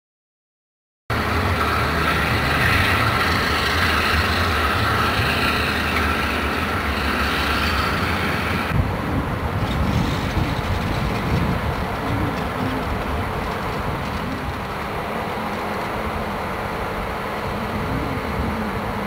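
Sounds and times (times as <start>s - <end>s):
diesel locomotive rumbling: 1.1s - 19.0s
hiss: 1.2s - 8.7s.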